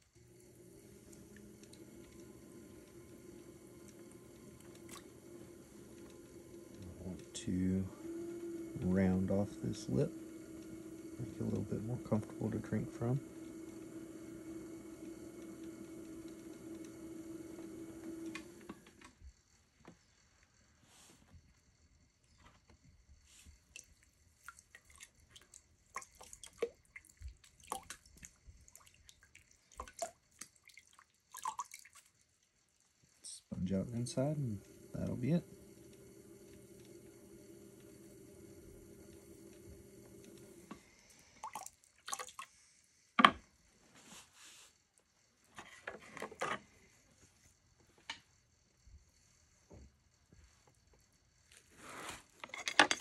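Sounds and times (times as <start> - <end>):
electric potter's wheel humming: 0.0 - 20.7, 32.2 - 44.0, 45.0 - 53.0
wet clay clicks and drips: 23.8 - 32.2.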